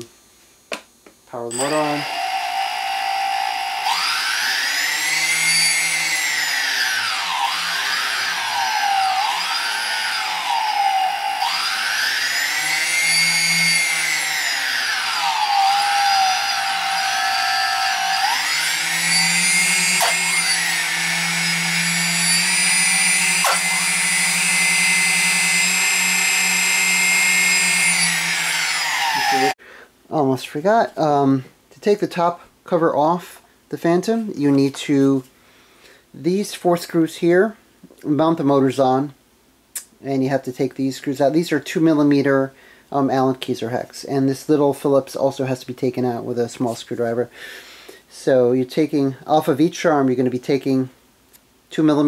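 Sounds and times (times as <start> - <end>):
electric motors whining: 1.5 - 29.6.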